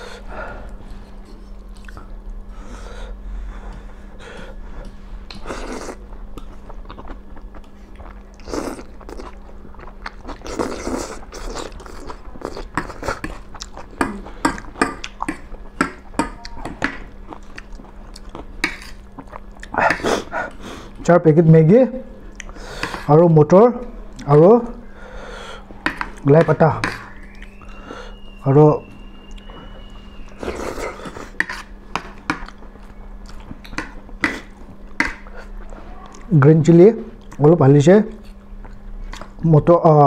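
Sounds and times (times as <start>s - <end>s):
people slurping noodles: 10.3s - 13.2s.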